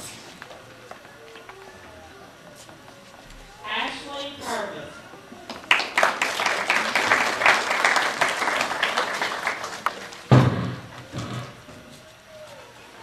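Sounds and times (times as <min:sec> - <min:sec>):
audience clapping: 0:05.5 - 0:10.4
loud thump: 0:10.3 - 0:10.9.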